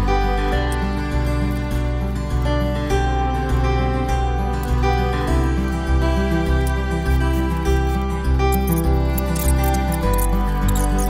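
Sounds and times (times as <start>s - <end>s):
instrumental music: 0.0s - 11.0s.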